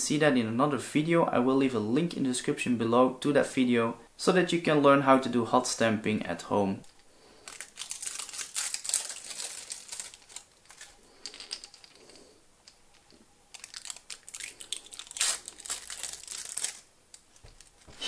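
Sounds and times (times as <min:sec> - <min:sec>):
foil sheet crinkling: 0:07.4 - 0:12.2, 0:13.5 - 0:18.0.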